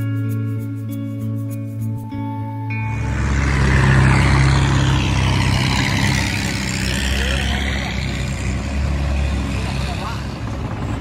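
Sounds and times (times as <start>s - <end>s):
boat engine running: 2.8s - 11.0s.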